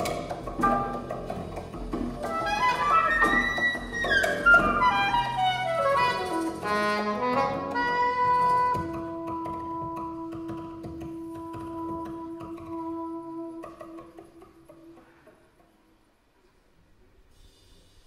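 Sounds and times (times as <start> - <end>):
cello: 0.0 - 16.6
saxophone: 2.3 - 15.2.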